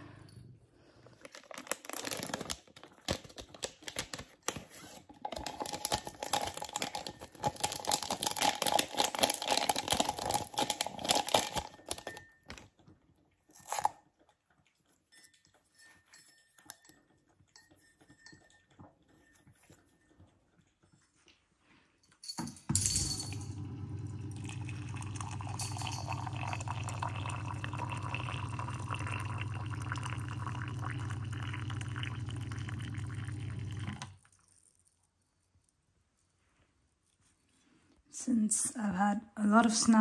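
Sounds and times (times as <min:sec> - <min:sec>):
wrapper crinkling and tearing: 0:01.2 - 0:12.6.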